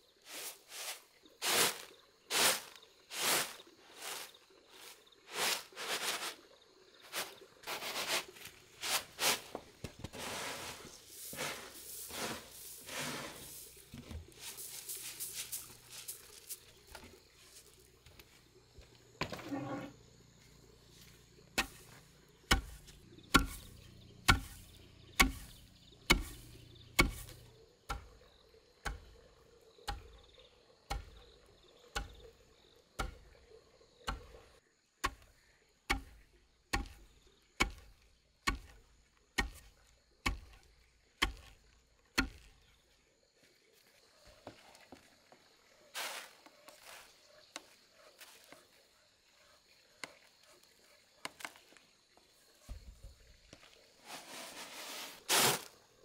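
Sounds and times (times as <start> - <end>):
grain rustling: 0.0 - 17.8, 45.9 - 47.4, 54.0 - 55.8.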